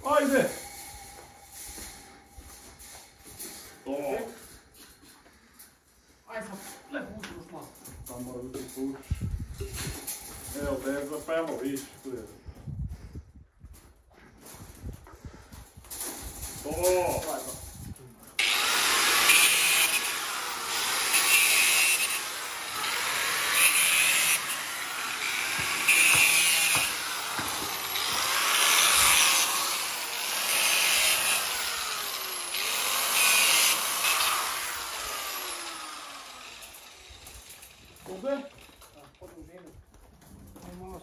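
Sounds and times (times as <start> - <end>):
angle grinder cutting steel mesh: 0.0 - 3.8, 18.4 - 39.0.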